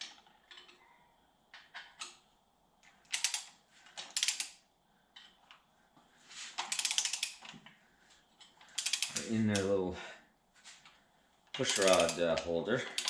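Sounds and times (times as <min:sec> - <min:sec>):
ratchet wrench clicking: 0:03.1 - 0:04.6, 0:06.6 - 0:07.5, 0:08.7 - 0:09.7, 0:11.6 - 0:13.0.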